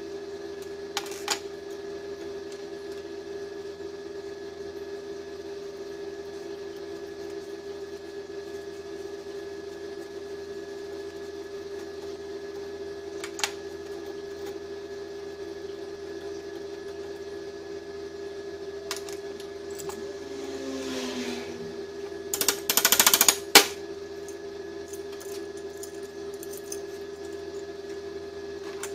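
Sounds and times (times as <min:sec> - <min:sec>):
steady hum: 0:18.9 - 0:23.0
metal scrape: 0:19.7 - 0:22.3.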